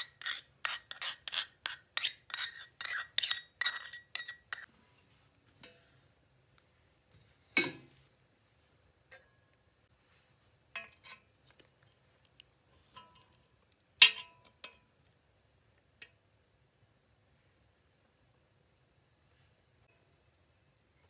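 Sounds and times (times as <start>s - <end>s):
metal spoons clinking on pot: 0.0s - 4.7s, 9.1s - 9.4s, 10.8s - 11.3s, 12.9s - 14.9s.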